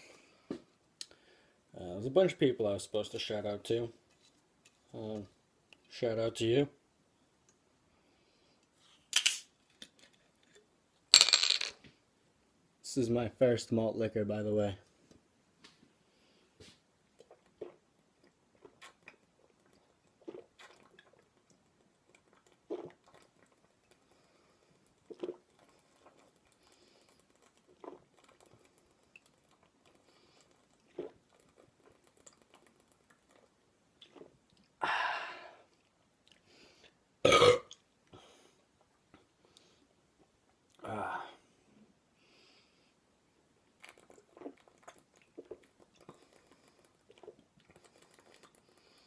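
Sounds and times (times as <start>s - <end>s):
swallowing gulps: 22.2s - 23.6s, 25.0s - 26.2s, 43.8s - 48.6s
man breathing out: 34.8s - 35.6s
loud burp: 37.2s - 37.8s.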